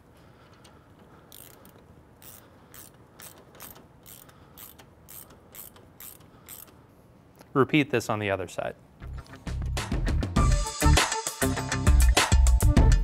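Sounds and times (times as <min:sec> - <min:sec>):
faint ratchet clicks: 0:00.4 - 0:07.5.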